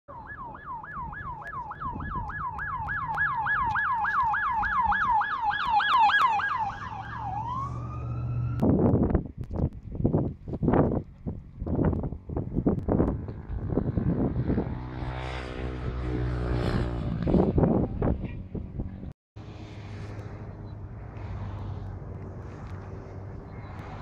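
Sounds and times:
emergency siren yelping and wailing: 0:00.1 - 0:08.7
wind buffeting microphone: 0:00.9 - 0:24.0
engine hum: 0:06.0 - 0:24.0.

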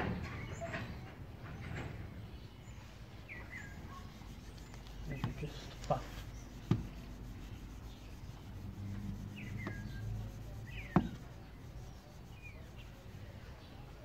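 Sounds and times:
cloth rubbing metal: 0:03.4 - 0:14.0.

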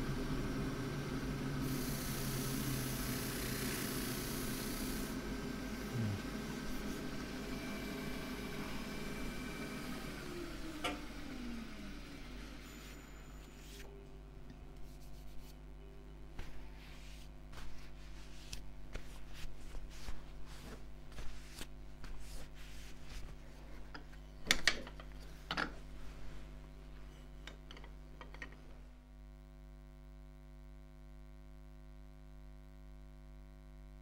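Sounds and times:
steady low hum: 0:00.0 - 0:31.3
cloth rubbing wood: 0:16.4 - 0:23.8.

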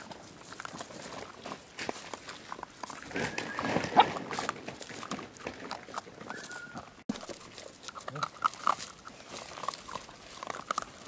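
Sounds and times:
dogs crunching dry kibble: 0:00.0 - 0:11.0
puppy whining: 0:06.2 - 0:07.0.

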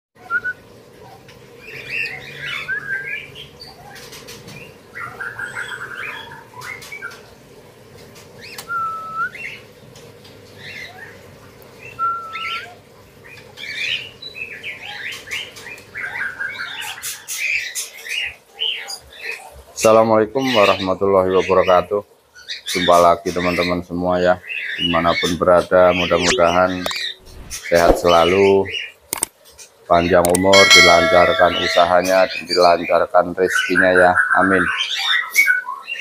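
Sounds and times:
songbirds chirping and whistling: 0:00.2 - 0:36.0
sharp clicks of birds: 0:08.0 - 0:08.7, 0:29.1 - 0:32.5.

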